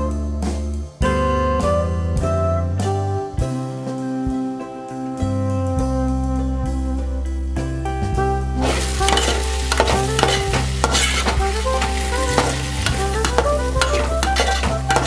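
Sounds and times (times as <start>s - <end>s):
background music: 0.0s - 15.0s
metal spoon scraping pot: 8.6s - 15.0s
vegetables sizzling in pot: 8.6s - 15.0s.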